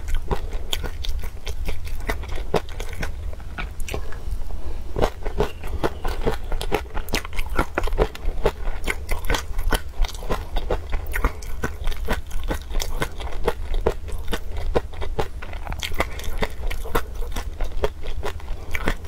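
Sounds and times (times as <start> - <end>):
crunchy chewing: 0.0 - 19.0.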